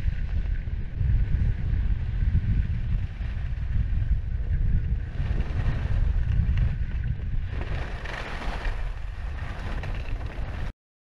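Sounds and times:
wind buffeting microphone: 0.0 - 10.7
skis scraping on snow: 7.4 - 10.7.

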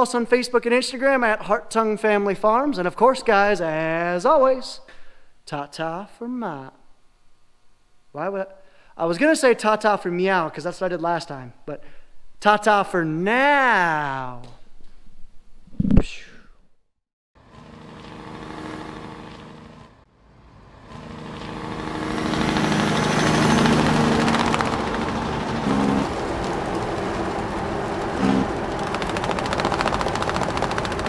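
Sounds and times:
engine running: 17.4 - 31.0.

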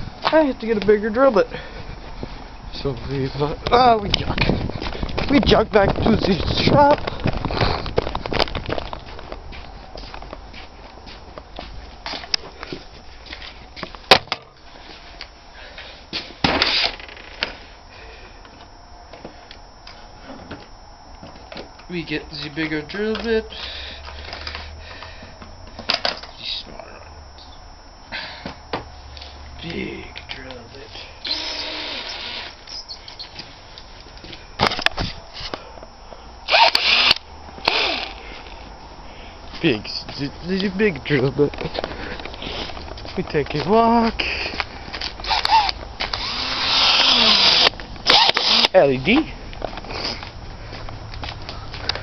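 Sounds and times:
footsteps on packed snow: 7.1 - 13.4
drill bit clicks: 31.3 - 32.6, 36.5 - 38.2, 45.2 - 48.8.

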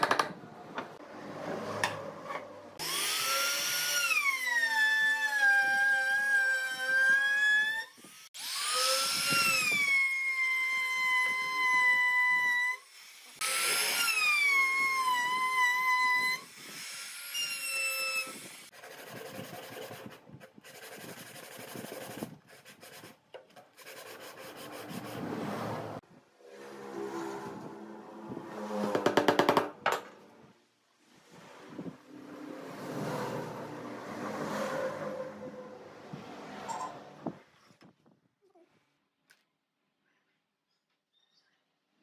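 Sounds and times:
sandpaper rasping on wood: 18.7 - 25.7.

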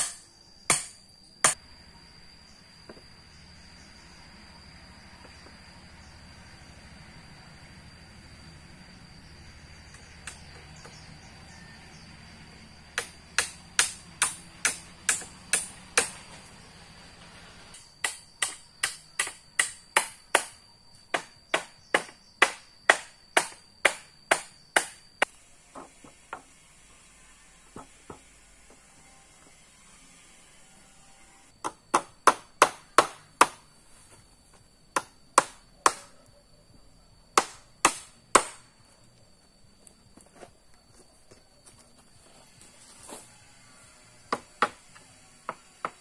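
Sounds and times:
sharp chopping strikes: 0.0 - 1.6, 13.0 - 16.2, 18.0 - 25.3, 37.4 - 38.7.

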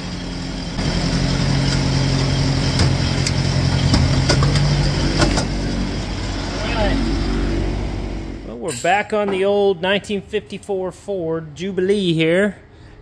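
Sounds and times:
tractor engine running: 0.0 - 8.6.

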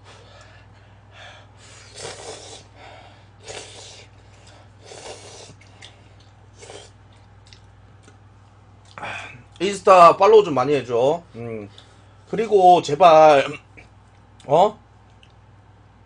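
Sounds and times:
person slurping noodles: 1.8 - 2.7, 3.4 - 4.1, 4.8 - 5.7, 6.6 - 7.0.

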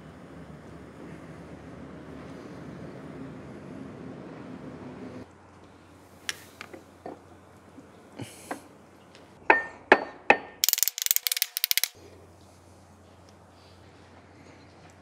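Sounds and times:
quick clicks: 10.6 - 12.0.

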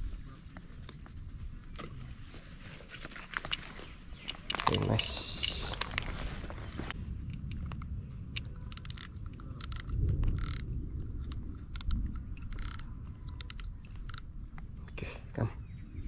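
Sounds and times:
high-pitched insect trill: 3.2 - 16.0
wind rumble on microphone: 5.0 - 16.0.

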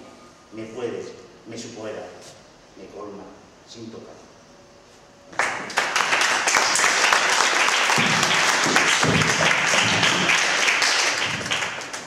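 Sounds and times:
audience applauding: 5.4 - 12.0.

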